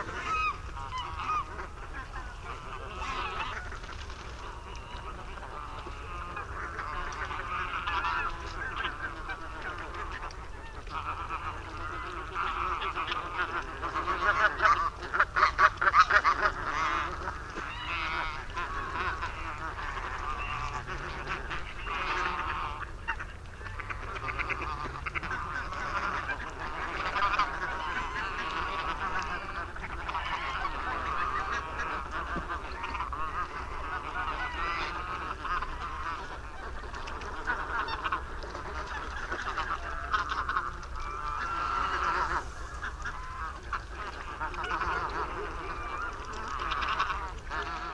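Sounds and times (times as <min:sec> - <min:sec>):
geese honking: 0:00.0 - 0:47.9.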